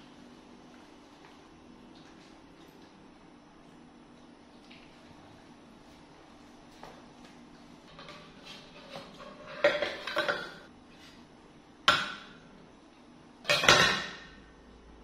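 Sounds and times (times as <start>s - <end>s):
plate clattering on stone countertop: 8.9s - 10.7s, 13.5s - 14.4s.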